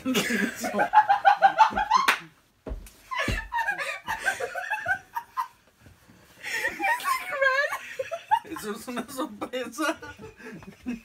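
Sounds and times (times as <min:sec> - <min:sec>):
people laughing: 0:00.0 - 0:02.2, 0:03.1 - 0:05.6, 0:06.4 - 0:11.0
people talking: 0:06.7 - 0:10.3.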